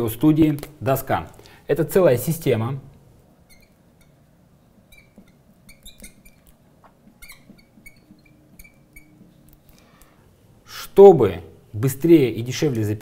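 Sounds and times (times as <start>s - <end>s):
marker squeaking on glass: 3.3s - 9.7s.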